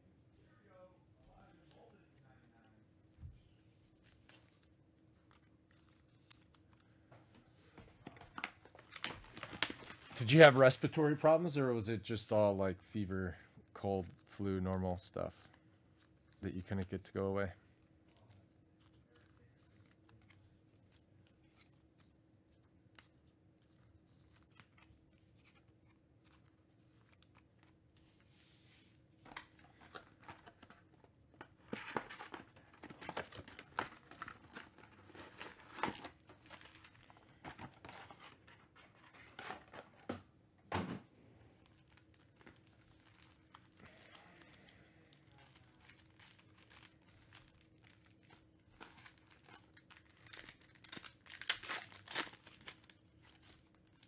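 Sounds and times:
faint steady hum: 0:00.0 - 0:54.0
cardboard and foil tearing: 0:41.8 - 0:54.0.

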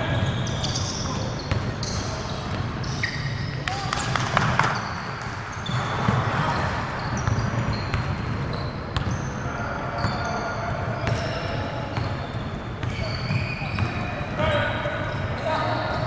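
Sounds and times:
hubbub of voices: 0:00.0 - 0:16.0
sneakers squeaking on court: 0:00.0 - 0:16.0.

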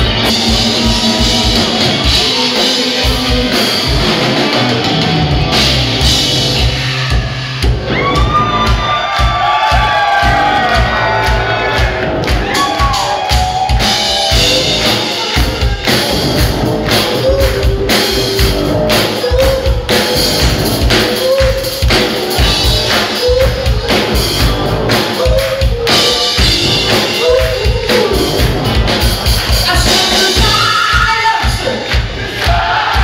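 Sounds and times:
live rock band playing: 0:00.0 - 0:33.0
man singing lead: 0:00.4 - 0:04.7, 0:17.1 - 0:28.5, 0:29.5 - 0:31.9.

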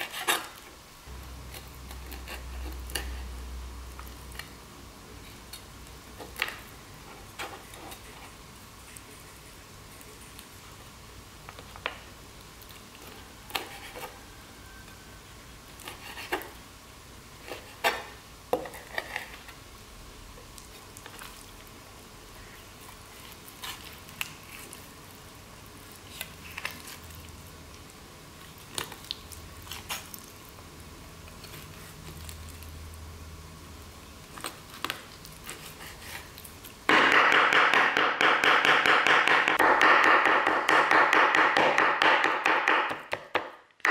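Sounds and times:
knife tapping cutting board: 0:36.9 - 0:43.9.

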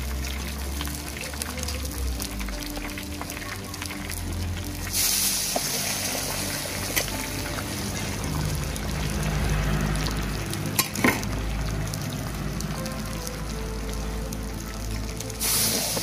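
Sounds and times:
fish sizzling in hot oil: 0:00.0 - 0:16.0.

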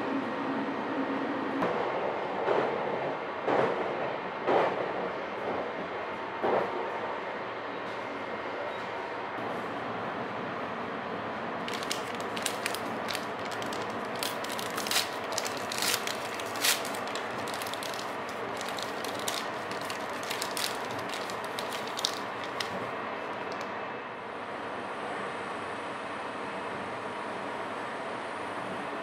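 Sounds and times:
train rumbling: 0:00.0 - 0:25.3
plastic wrapper crinkling: 0:11.6 - 0:23.7.

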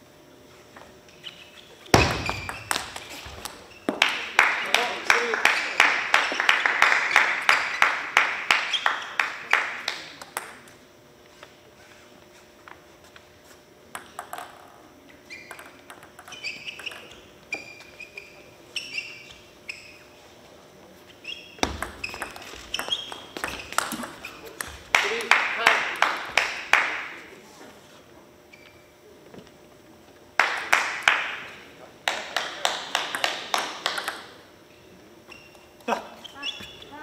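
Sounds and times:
ringing ping pong bounces: 0:02.0 - 0:04.1, 0:14.0 - 0:14.7, 0:15.4 - 0:18.4, 0:21.6 - 0:24.8, 0:32.9 - 0:34.4
table tennis ball clicks: 0:02.0 - 0:04.1, 0:15.4 - 0:17.3, 0:21.6 - 0:25.3, 0:32.4 - 0:34.3.

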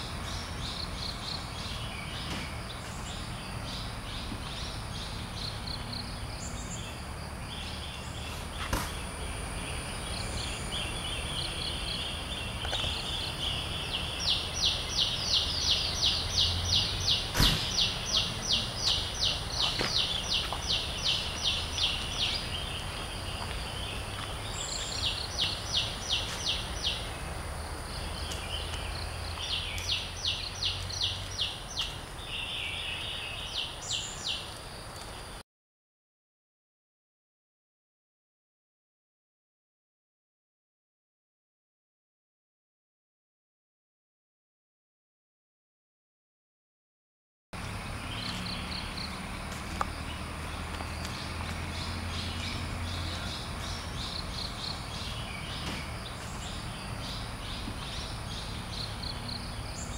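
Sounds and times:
high insect drone: 0:00.2 - 0:35.3.

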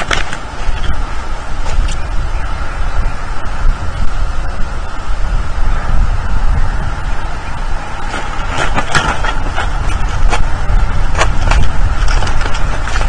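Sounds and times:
bird flapping and clambering: 0:00.0 - 0:02.1, 0:07.7 - 0:13.0
wind buffeting microphone: 0:00.0 - 0:13.0.

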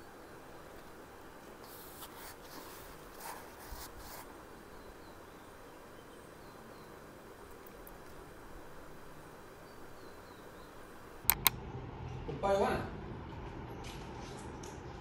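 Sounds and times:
room hiss: 0:00.0 - 0:11.3
paper rustling: 0:01.6 - 0:04.3.

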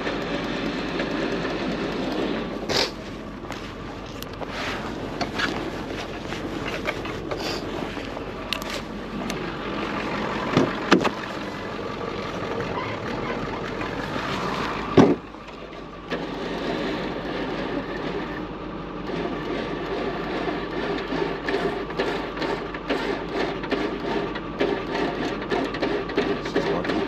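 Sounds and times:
truck engine running: 0:00.0 - 0:27.0
loud thump: 0:10.5 - 0:11.2, 0:15.0 - 0:15.3
sharp knocks: 0:10.5 - 0:11.2, 0:14.9 - 0:15.3.

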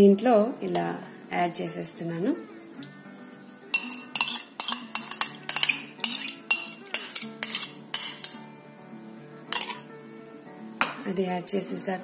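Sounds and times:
metal spoon scraping ceramic bowl: 0:03.7 - 0:08.4, 0:09.5 - 0:09.9.

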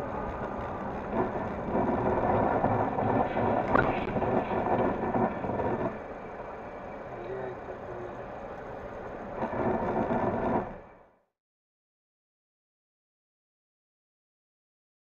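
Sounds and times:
road and engine noise inside car: 0:00.0 - 0:11.2.

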